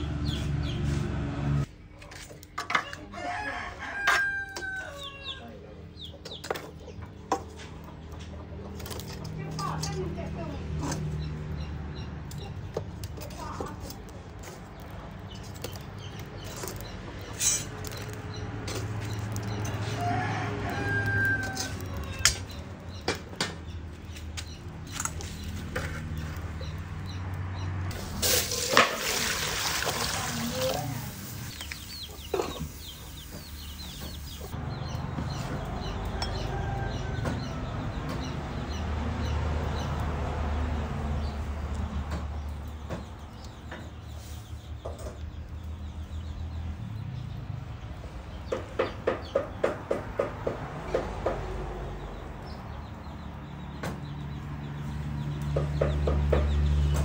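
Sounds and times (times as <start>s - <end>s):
chickens clucking: 1.8s - 40.0s
sharp clicks and knocks: 21.5s - 27.5s.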